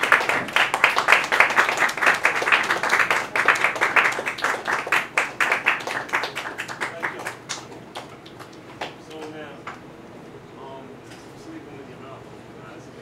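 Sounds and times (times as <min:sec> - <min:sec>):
hands clapping: 0:00.0 - 0:09.8.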